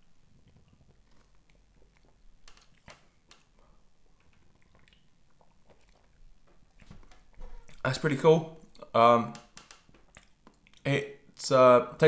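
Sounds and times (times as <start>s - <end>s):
sipping and swallowing: 0.3s - 7.8s.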